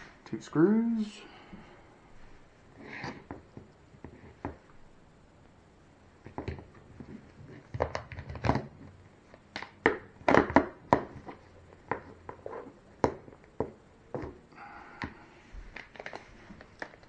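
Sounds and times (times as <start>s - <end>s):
crinkling: 6.2s - 17.0s.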